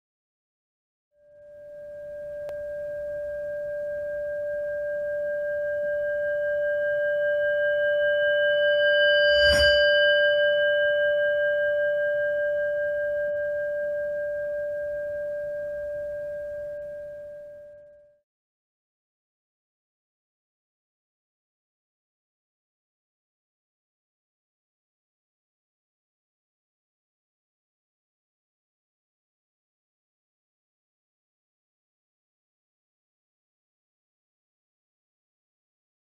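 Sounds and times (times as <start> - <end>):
ringing singing bowl tone: 1.2 - 18.2.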